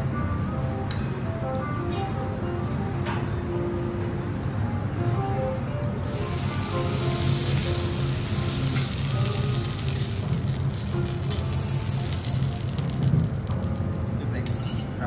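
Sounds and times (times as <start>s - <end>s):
meat sizzling on a griddle: 6.0s - 14.2s
steel spatulas on a griddle: 6.0s - 15.0s.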